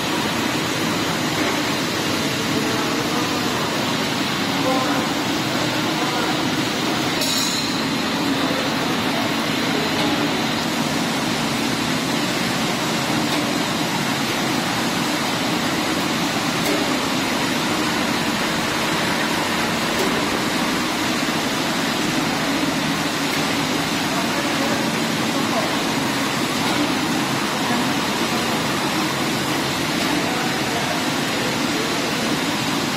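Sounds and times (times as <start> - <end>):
factory machinery hum: 0.0 - 32.9.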